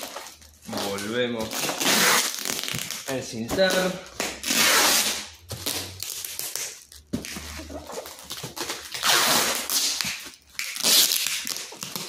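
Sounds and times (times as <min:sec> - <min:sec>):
packing tape being applied: 0:00.0 - 0:12.0
plastic bag crinkling: 0:05.4 - 0:12.0.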